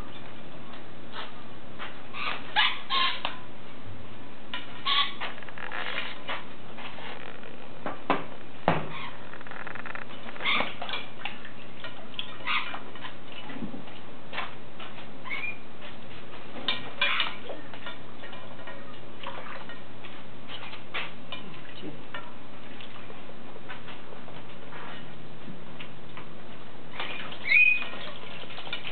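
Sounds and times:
parrot splashing in water: 0:26.9 - 0:28.9.

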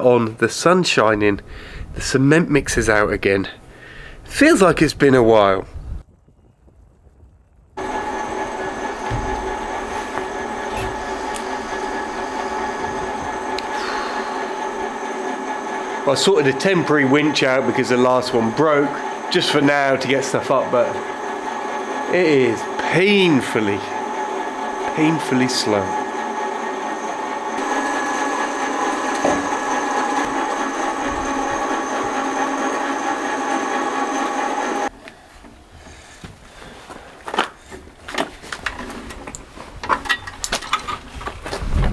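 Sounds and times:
electric winch motor whining: 0:07.8 - 0:36.1.

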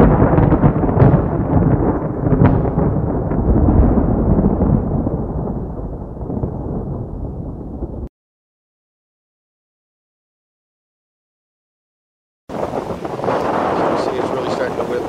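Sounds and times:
rumbling boom with crackles: 0:00.0 - 0:08.1, 0:12.5 - 0:15.0.

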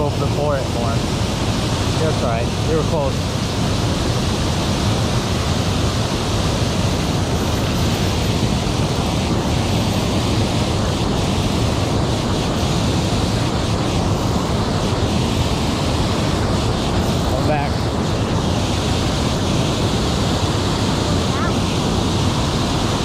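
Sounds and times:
water rushing over dam: 0:00.0 - 0:23.0.

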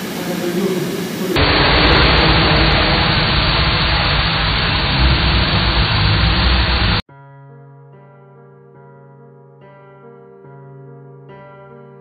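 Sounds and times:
loud rushing noise: 0:00.0 - 0:07.0
low rumble: 0:01.4 - 0:07.0
soft music with sustained notes: 0:07.2 - 0:12.0.

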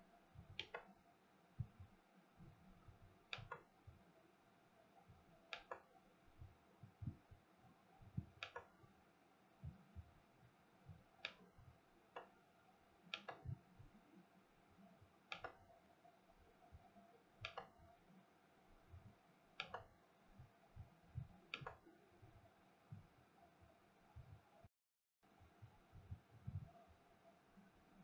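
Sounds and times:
faint sharp clicks: 0:03.3 - 0:03.7, 0:05.5 - 0:05.9, 0:08.2 - 0:08.8, 0:15.3 - 0:15.6, 0:17.4 - 0:17.8, 0:19.6 - 0:19.9, 0:21.5 - 0:21.9.

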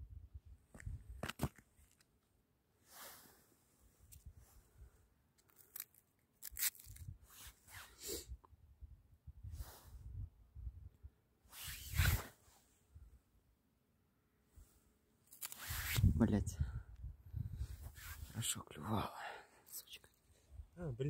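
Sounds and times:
crunching of snow and ice: 0:05.4 - 0:07.6
jacket sleeve rustling: 0:15.3 - 0:16.1.

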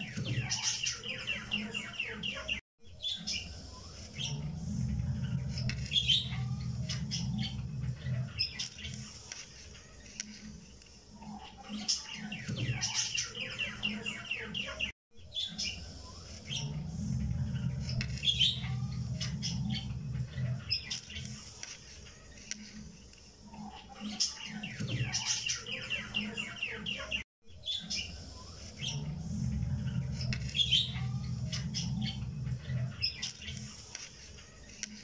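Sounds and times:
birds chirping and trilling: 0:00.0 - 0:35.0
low steady hum: 0:03.4 - 0:08.4, 0:15.7 - 0:20.7, 0:28.0 - 0:33.2.

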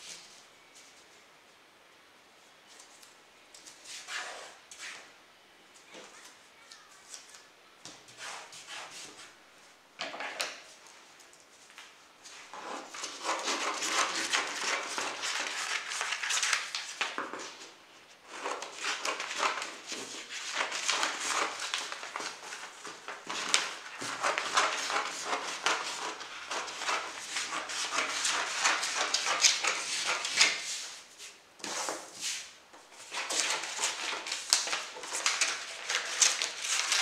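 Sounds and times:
paper rustling and sliding: 0:12.3 - 0:17.7, 0:18.3 - 0:37.0.

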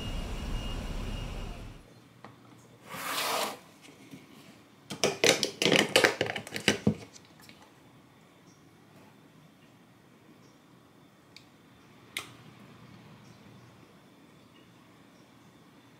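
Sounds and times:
street traffic noise: 0:00.0 - 0:01.8.

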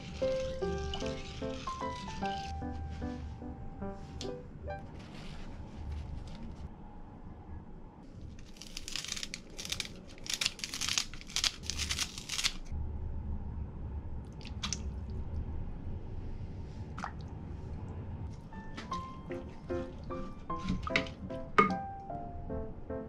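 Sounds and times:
paper towel crinkling: 0:04.8 - 0:06.7, 0:08.3 - 0:12.6.

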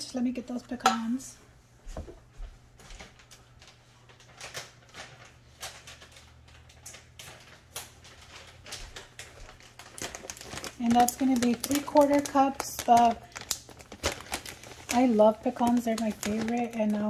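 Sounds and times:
kitchen things clicking and rustling: 0:02.9 - 0:17.0.

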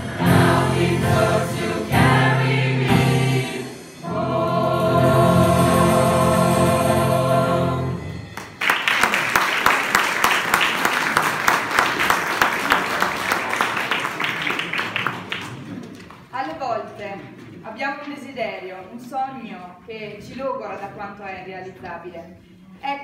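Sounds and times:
choir singing: 0:00.0 - 0:08.3
audience applause: 0:08.4 - 0:16.2.

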